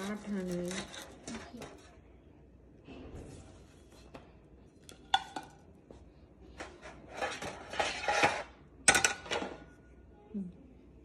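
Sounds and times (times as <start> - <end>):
scraping and rubbing: 0.0 - 1.9, 6.6 - 8.6
kitchenware clattering on metal tray: 6.6 - 9.7.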